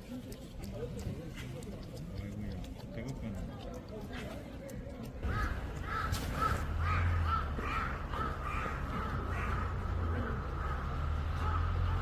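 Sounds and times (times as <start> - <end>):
crow cawing: 5.3 - 9.9.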